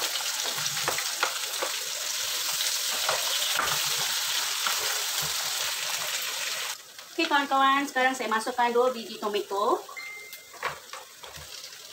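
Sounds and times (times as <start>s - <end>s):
onions sizzling in oil: 0.0s - 11.9s.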